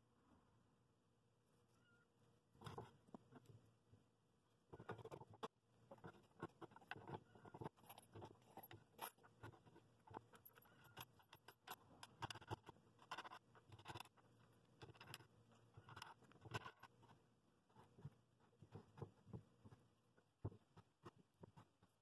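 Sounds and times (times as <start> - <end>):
faint clicks of wood and metal nuts: 4.7 - 17.2.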